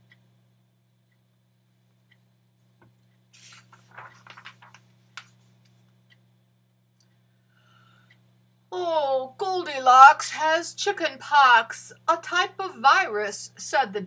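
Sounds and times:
faint steady hum: 0.0s - 14.0s
book page turning: 3.4s - 5.4s.

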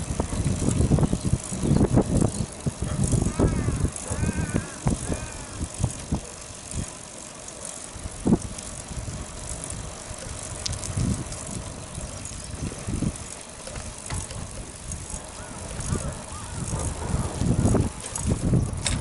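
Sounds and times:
bicycle rattle and tyre hum: 0.0s - 19.0s
bike knocking over bumps: 13.6s - 14.5s, 16.6s - 19.0s.

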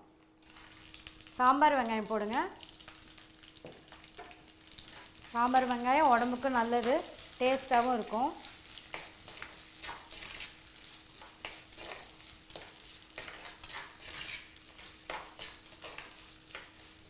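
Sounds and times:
oil sizzling: 0.4s - 17.0s
spatula scraping clay pot: 13.2s - 14.6s.

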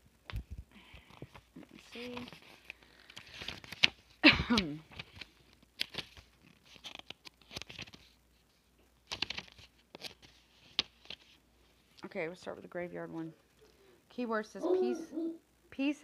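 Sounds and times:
pages rustling: 0.3s - 12.0s
murmured voice: 14.4s - 15.4s.

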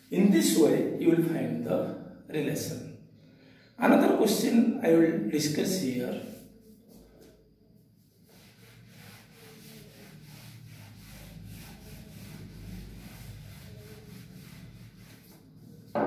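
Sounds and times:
eraser rubbing on whiteboard: 6.1s - 7.4s, 8.0s - 15.9s.

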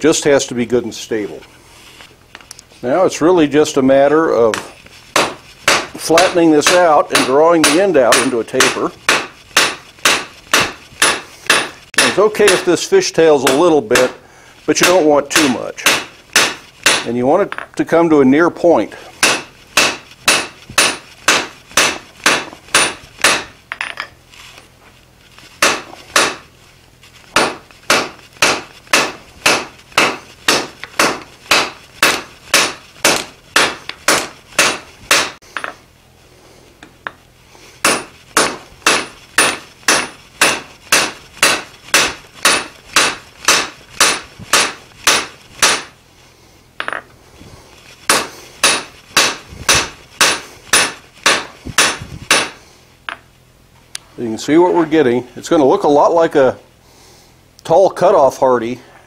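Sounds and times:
hammer striking steel on anvil: 4.5s - 12.7s, 13.4s - 14.2s, 14.8s - 17.7s, 19.2s - 24.1s, 25.6s - 26.4s, 27.4s - 35.8s, 37.8s - 45.9s, 48.1s - 53.2s.

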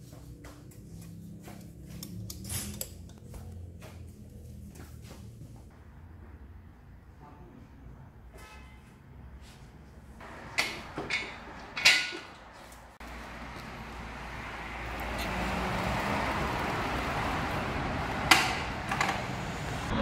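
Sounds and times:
outdoor background noise: 0.0s - 20.0s
knocks and clanks on motorcycle: 18.2s - 19.2s.

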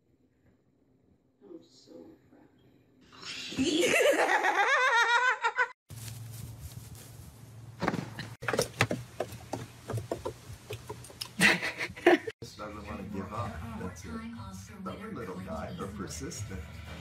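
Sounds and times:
scattered knocks: 7.8s - 11.2s
person laughing high-pitched: 11.3s - 12.3s.

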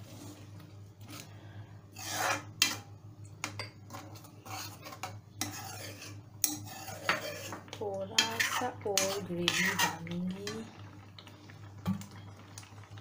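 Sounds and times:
metal ladle scraping a pan: 1.9s - 2.9s, 3.9s - 10.6s.

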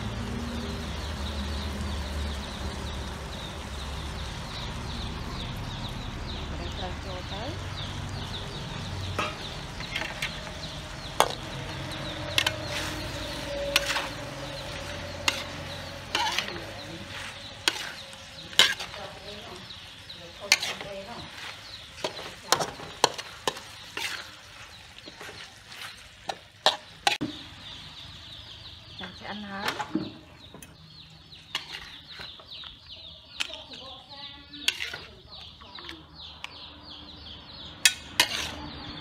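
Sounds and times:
hot oil sizzling: 0.0s - 35.1s, 37.7s - 39.0s
metal spatula scraping a wok: 9.0s - 27.4s, 31.4s - 32.4s, 34.5s - 35.3s, 37.8s - 39.0s.

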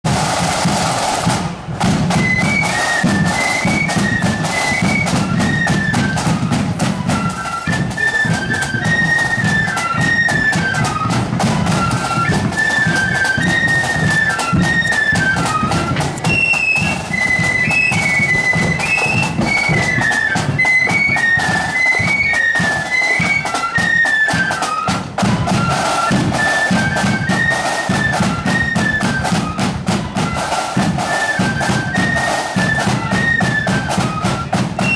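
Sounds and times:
snare and bass drum beats: 0.0s - 34.9s
flutes playing melody: 0.1s - 34.9s.

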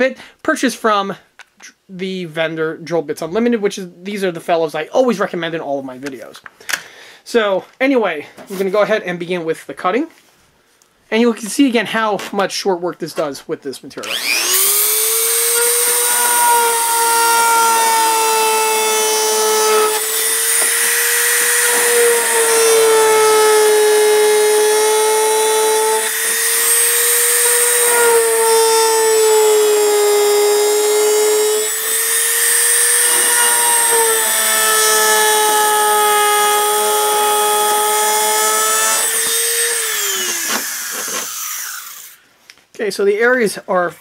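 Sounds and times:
rotary tool cutting plastic: 14.0s - 42.2s
motor spinning down: 14.1s - 22.3s, 37.7s - 42.2s.

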